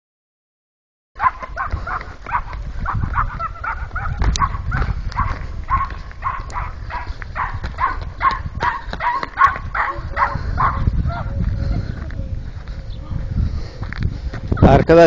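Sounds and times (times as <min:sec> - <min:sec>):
small dog yapping: 0:01.2 - 0:11.3.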